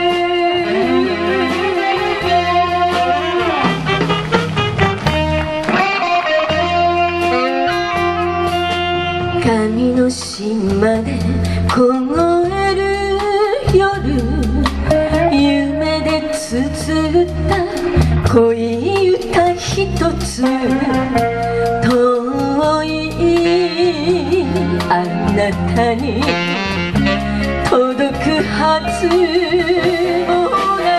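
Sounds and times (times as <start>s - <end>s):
woman singing: 0.0s - 3.3s, 9.2s - 26.7s, 27.4s - 30.9s
live band playing ballad: 0.0s - 30.9s.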